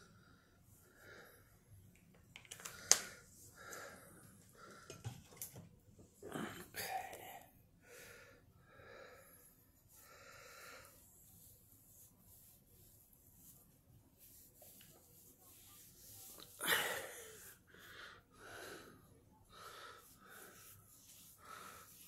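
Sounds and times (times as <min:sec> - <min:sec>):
woman breathing heavily: 0:16.6 - 0:22.0.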